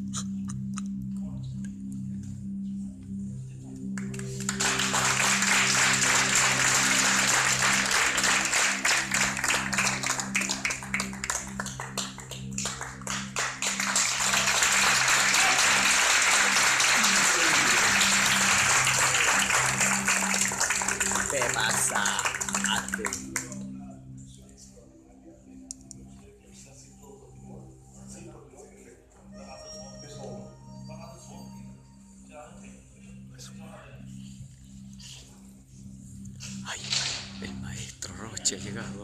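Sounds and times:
background music with pulsing drone: 0.0 - 39.0
audience applauding: 4.0 - 23.6.

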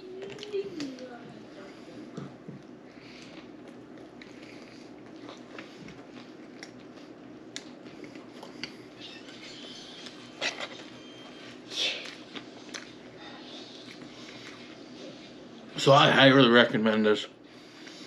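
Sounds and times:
person chewing: 2.6 - 15.5.

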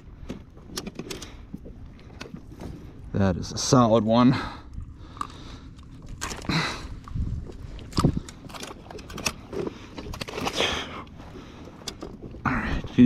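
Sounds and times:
clicks and knocks of fish handling: 0.0 - 2.8, 5.1 - 10.9, 11.5 - 12.4
low steady rumble: 0.0 - 13.0.

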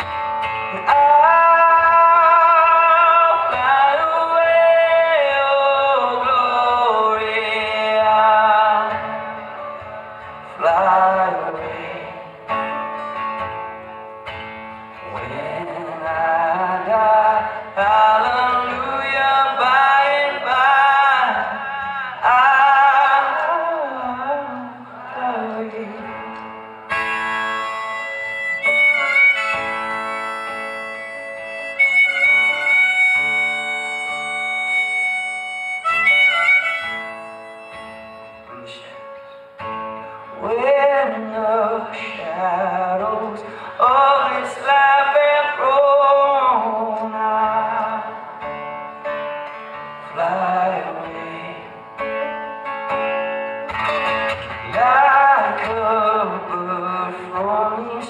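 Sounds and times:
man singing into a microphone: 0.0 - 13.0, 15.0 - 39.4, 40.0 - 48.7, 49.7 - 52.3, 53.8 - 58.0
acoustic guitar: 0.0 - 58.0
long held high notes: 26.6 - 40.3.

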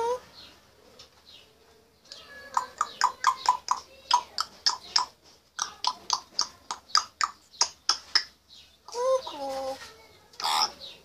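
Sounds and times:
parrot clicking: 2.1 - 8.3.

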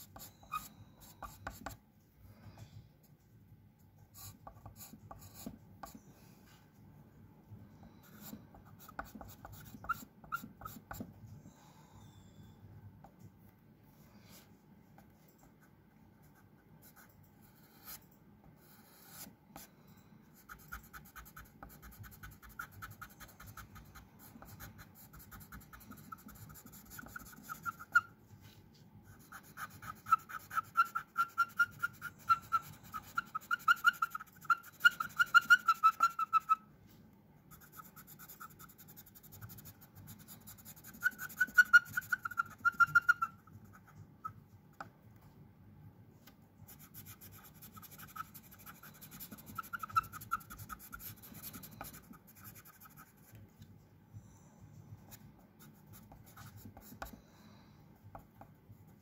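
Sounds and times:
pencil scratching on paper: 0.0 - 1.8, 4.0 - 6.0, 7.8 - 11.1, 16.3 - 19.7, 20.4 - 28.2, 29.1 - 36.6, 37.5 - 44.4, 46.7 - 53.4, 55.1 - 57.2.

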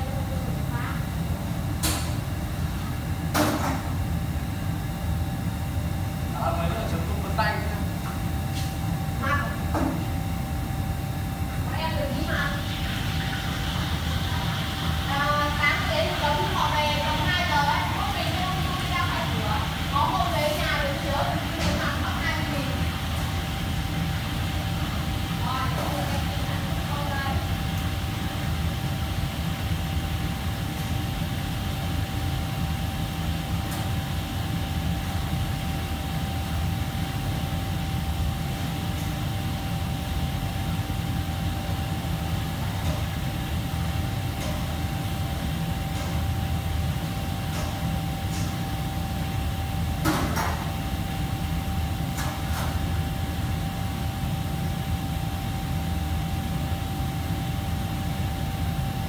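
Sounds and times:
thin machine whine: 9.0 - 31.1.

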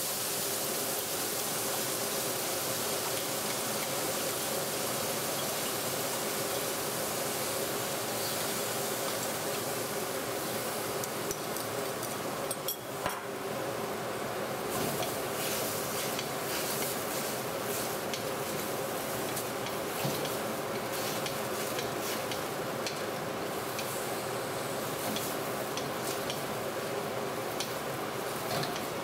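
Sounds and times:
food sizzling in a wok: 0.0 - 29.0.

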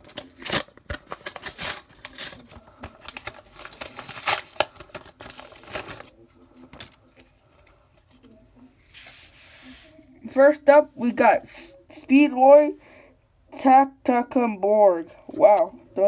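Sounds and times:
packaging crinkling and tearing: 0.0 - 7.0.

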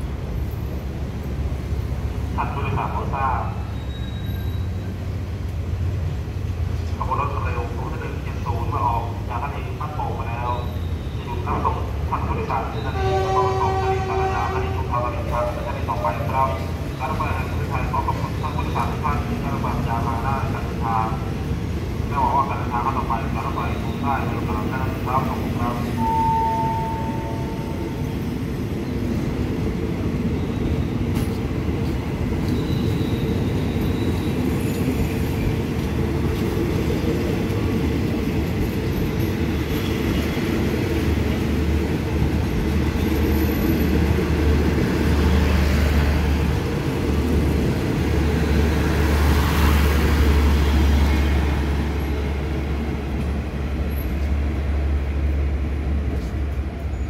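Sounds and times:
train coaches rumbling on rails: 0.0 - 57.0.

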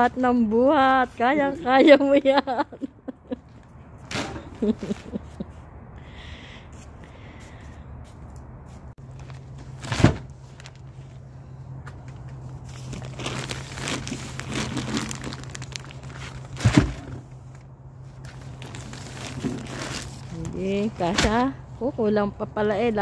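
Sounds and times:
plastic bags crinkling: 12.7 - 16.6, 18.3 - 20.3
heavy bags thumping down: 16.5 - 17.2.

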